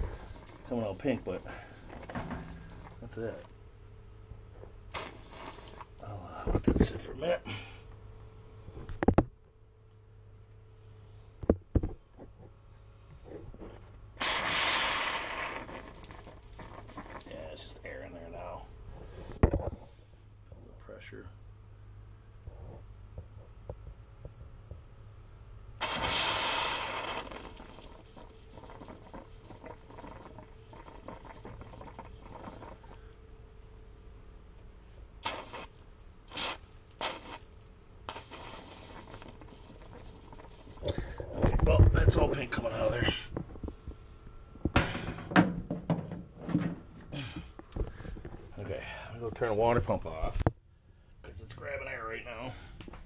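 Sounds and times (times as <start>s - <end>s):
hiss of air from water line: 4.9s - 6.0s, 14.2s - 17.4s, 25.8s - 33.2s, 34.8s - 41.2s
water pump pushing air: 14.2s - 17.4s, 25.8s - 33.0s, 35.2s - 41.2s.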